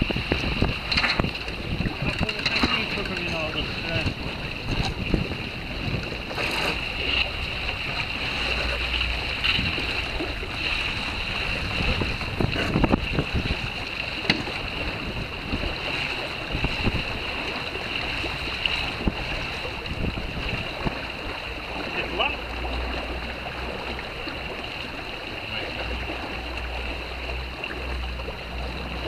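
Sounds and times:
water rushing along boat hull: 0.0 - 29.0
wind on microphone: 0.0 - 29.0.

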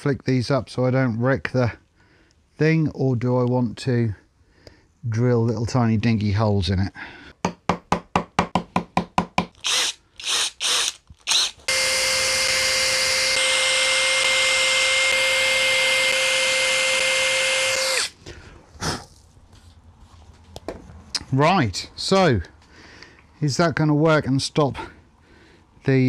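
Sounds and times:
drill boring into plywood: 9.6 - 18.2.

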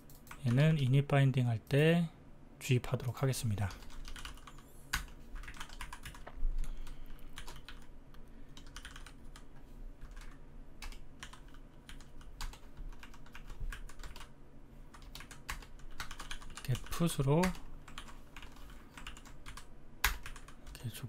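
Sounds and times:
keyboard typing: 0.0 - 0.8, 3.6 - 7.9, 8.5 - 14.3, 14.9 - 20.8.

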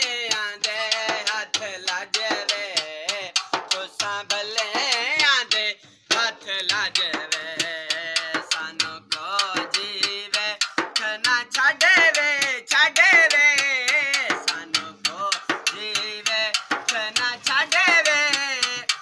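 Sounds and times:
hand drum beat: 0.0 - 19.0
man singing with vibrato: 0.0 - 19.0.

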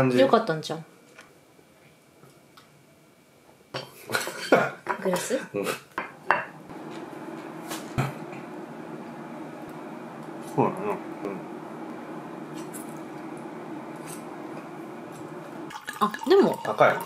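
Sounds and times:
steady low hum: 6.3 - 17.0.

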